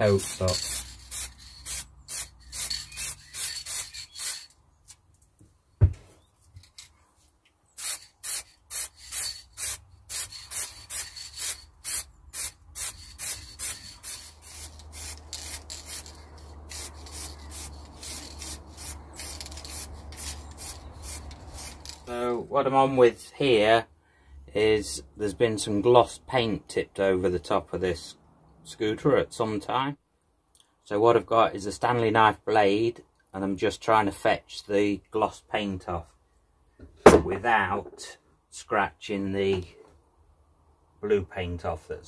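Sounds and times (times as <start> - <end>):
spray paint can hissing: 0.1 - 4.5, 7.8 - 22.1
sharp knock: 37.0 - 37.3.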